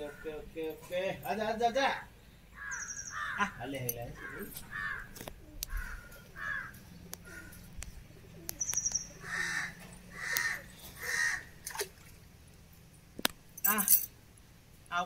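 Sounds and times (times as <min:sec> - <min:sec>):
crows cawing: 0:00.0 - 0:00.4, 0:02.0 - 0:07.8, 0:09.2 - 0:11.6
small bird chirp: 0:02.6 - 0:03.4, 0:07.0 - 0:09.4.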